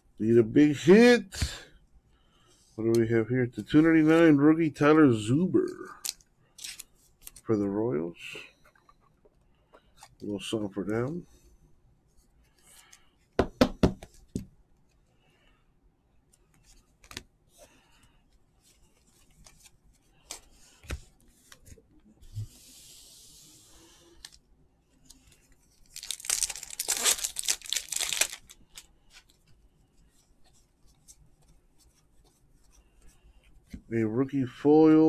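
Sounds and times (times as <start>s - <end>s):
cards clicking and rustling: 6.0s - 7.5s, 25.1s - 29.6s
wrapper ripping: 25.8s - 28.9s.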